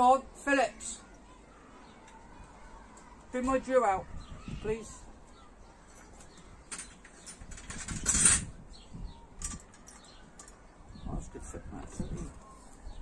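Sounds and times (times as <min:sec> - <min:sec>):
metal parts clicking: 0:05.8 - 0:08.5, 0:09.4 - 0:10.6.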